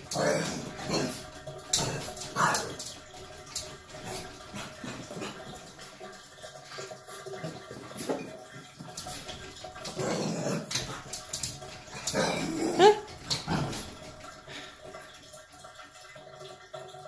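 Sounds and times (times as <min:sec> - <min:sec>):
dog growling and grumbling: 0:00.0 - 0:02.9, 0:09.8 - 0:11.0, 0:11.9 - 0:14.1.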